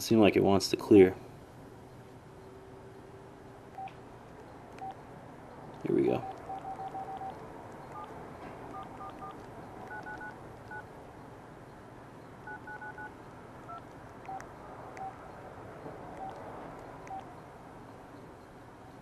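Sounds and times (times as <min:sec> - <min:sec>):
phone keypad beeps: 0:03.7 - 0:05.0, 0:05.9 - 0:10.9, 0:12.4 - 0:15.3, 0:16.2 - 0:16.4, 0:17.0 - 0:17.3
lower single beeps: 0:04.8 - 0:05.0, 0:06.2 - 0:08.1, 0:08.7 - 0:10.8, 0:12.4 - 0:13.1, 0:13.7 - 0:14.4, 0:15.0 - 0:15.2, 0:16.2 - 0:16.4.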